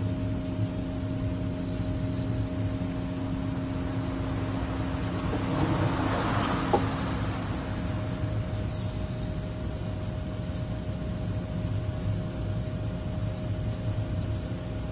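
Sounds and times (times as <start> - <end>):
low machine hum: 0.0 - 14.9.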